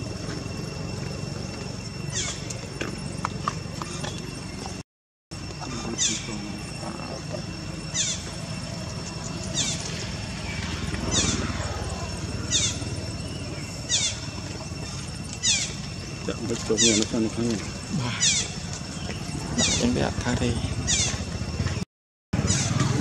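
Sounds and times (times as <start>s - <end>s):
bird calling: 1.8s - 2.8s, 5.5s - 21.8s, 22.4s - 23.0s
low outdoor rumble: 5.4s - 21.8s.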